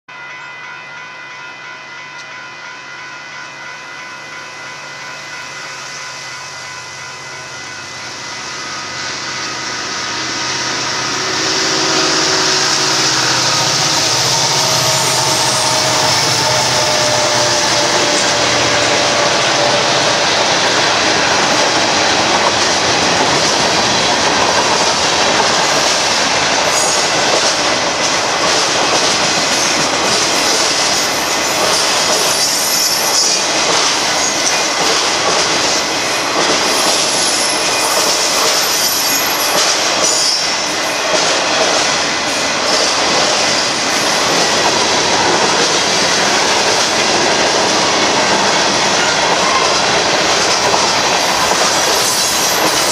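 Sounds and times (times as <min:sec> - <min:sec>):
rumble of rolling freight cars: 0:00.1 - 0:52.9
high wheel squeals: 0:05.7 - 0:20.2, 0:36.7 - 0:40.8, 0:51.2 - 0:52.9
locomotive engine hum: 0:07.2 - 0:23.4
train wheels clicking over rail joints: 0:13.2 - 0:52.9.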